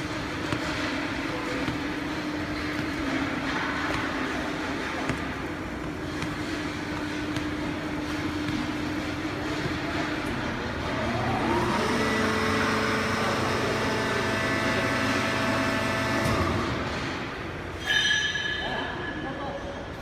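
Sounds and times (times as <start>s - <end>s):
machine whine: 0.0s - 18.3s
sharp high squeal: 17.8s - 19.2s.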